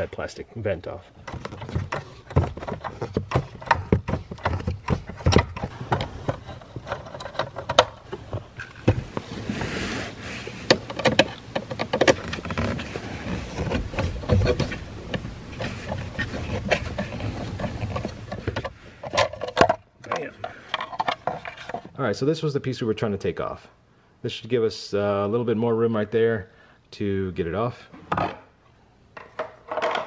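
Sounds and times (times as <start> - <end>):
rustling: 0.0 - 22.0.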